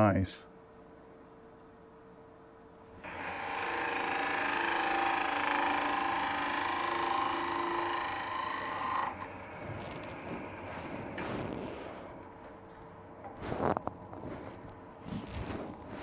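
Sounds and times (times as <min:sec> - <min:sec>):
wood lathe spinning: 0:03.0 - 0:11.2
turning tool shaving wood: 0:03.1 - 0:11.1.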